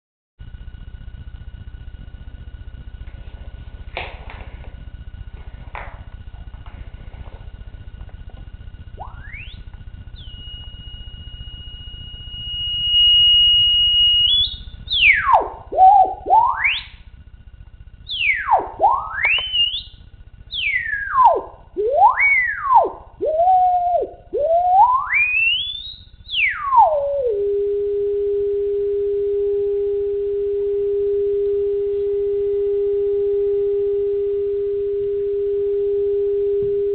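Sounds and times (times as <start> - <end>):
horn driver test tone: 9.0 - 17.1, 18.1 - 36.9.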